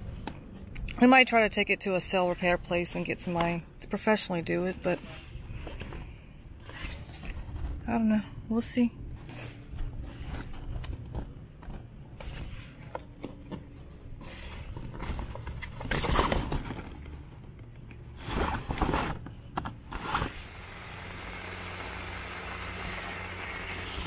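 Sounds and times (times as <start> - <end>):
steady low hum: 0.0 - 24.0
sailcloth rustling and crinkling: 9.2 - 20.5.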